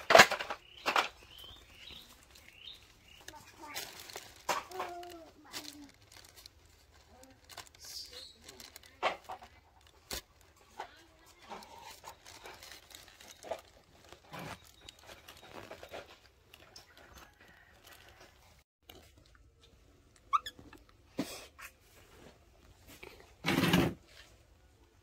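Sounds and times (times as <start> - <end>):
plastic sheet crinkling: 0.0 - 18.4.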